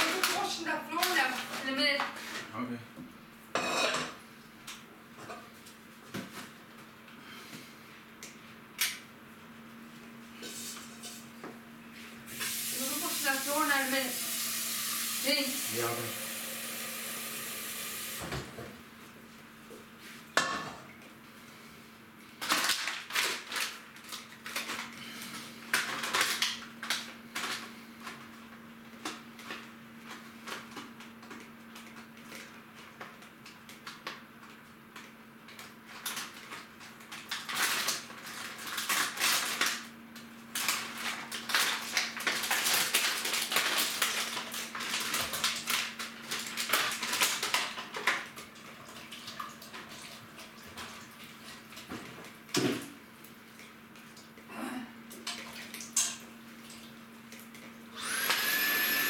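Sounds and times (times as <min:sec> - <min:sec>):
dishes and cutlery clattering: 0:03.6 - 0:04.2.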